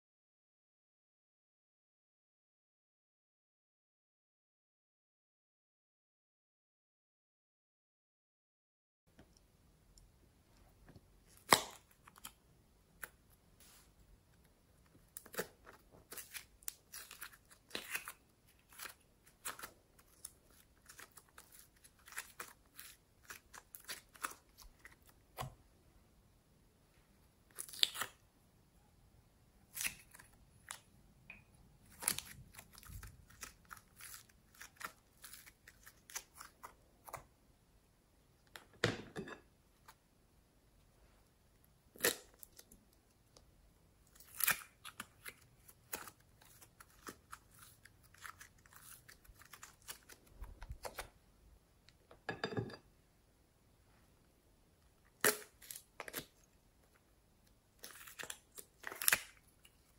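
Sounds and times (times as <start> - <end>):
sticky slime crackling: 14.9 - 25.5, 31.8 - 37.2, 44.1 - 51.1, 57.8 - 59.9.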